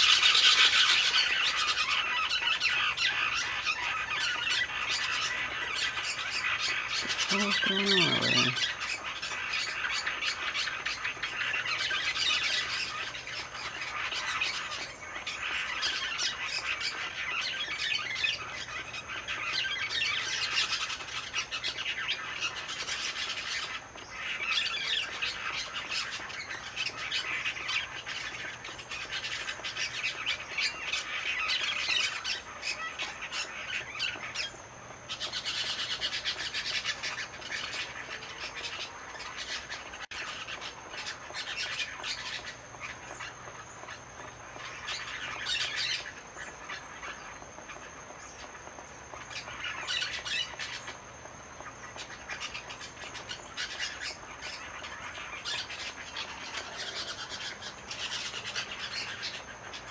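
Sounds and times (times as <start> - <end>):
parakeets squawking: 0.0 - 8.8.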